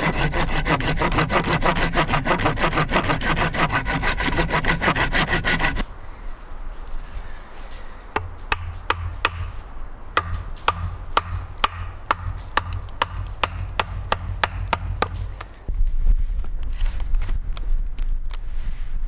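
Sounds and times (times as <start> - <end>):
hatchet chopping log: 0.0 - 5.8, 8.1 - 9.6, 10.2 - 15.6.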